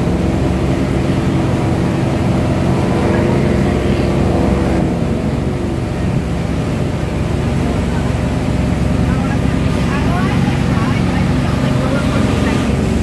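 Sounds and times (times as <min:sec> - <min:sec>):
motorboat engine running: 0:00.0 - 0:13.0
water rushing: 0:00.0 - 0:13.0.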